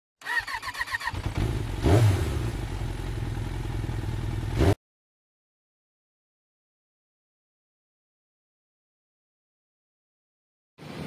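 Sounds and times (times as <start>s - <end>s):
engine running: 0.3s - 4.8s.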